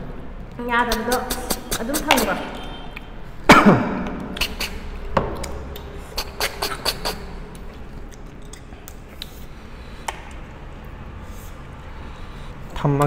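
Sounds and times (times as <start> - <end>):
slurping snails from shells: 4.3 - 10.0.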